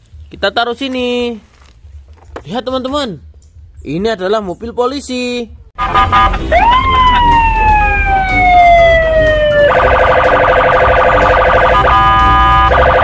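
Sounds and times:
police siren wailing and warbling: 5.8 - 13.0.

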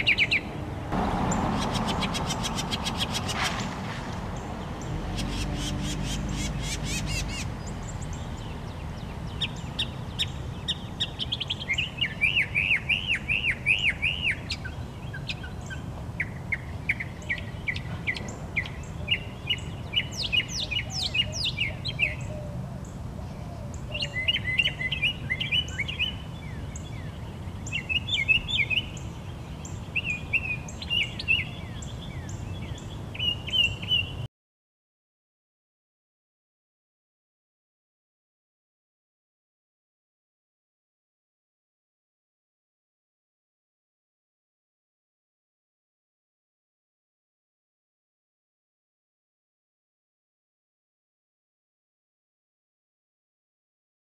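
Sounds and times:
mockingbird singing: 0.0 - 3.4, 4.4 - 34.2.

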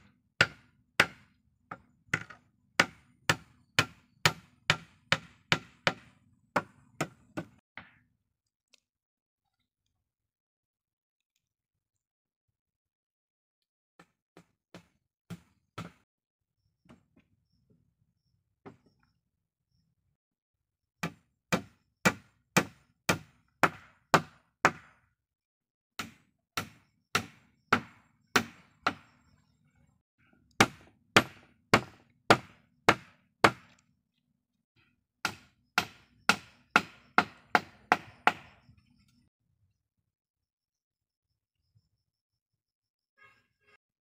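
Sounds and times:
hatchet knocking on wood: 0.4 - 8.0, 35.2 - 38.5.

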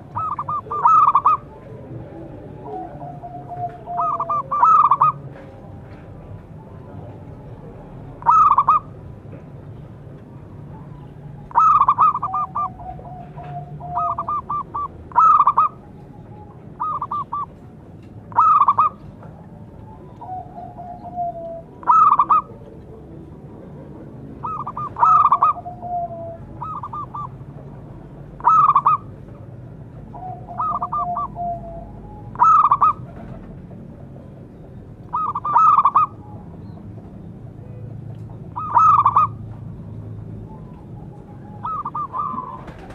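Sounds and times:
dove cooing: 0.0 - 5.7, 6.8 - 9.0, 10.7 - 17.7, 18.3 - 27.5, 28.4 - 29.2, 30.0 - 33.6, 35.1 - 36.8, 38.5 - 39.5, 40.4 - 42.9.

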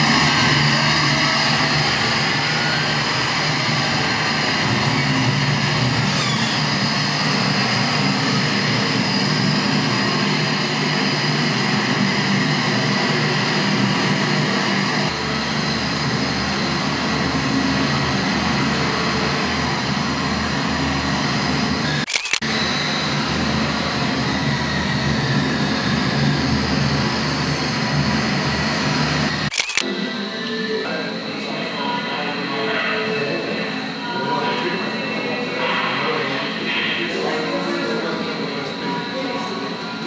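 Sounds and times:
loud mechanical drone: 0.0 - 40.0.

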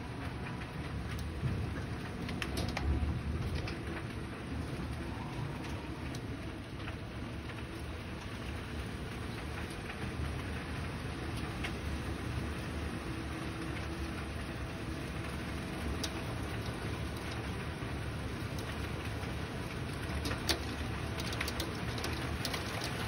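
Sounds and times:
heavy rain pouring: 0.0 - 23.0
raindrops ticking: 0.0 - 23.0.

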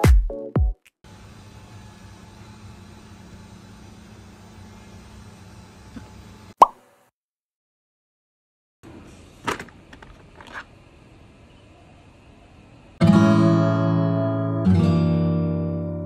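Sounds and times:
acoustic guitar strumming: 13.0 - 16.0.

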